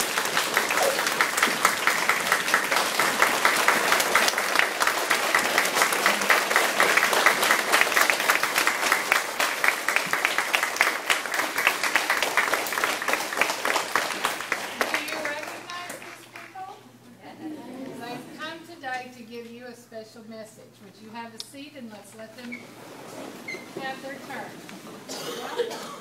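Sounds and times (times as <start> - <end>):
crowd of children applauding: 0.0 - 16.7.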